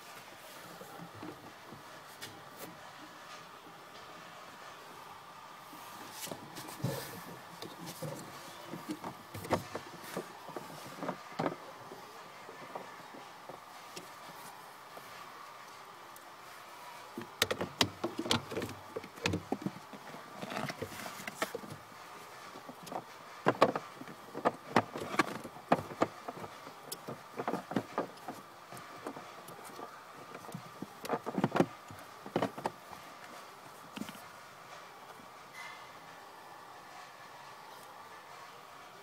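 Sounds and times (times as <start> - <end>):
plastic glove box clicks and rattles: 17.3 - 19.8, 30.3 - 32.8.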